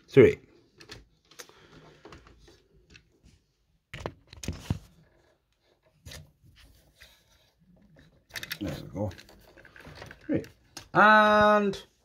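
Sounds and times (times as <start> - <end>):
soft handling knocks and rubs: 4.3 - 8.2.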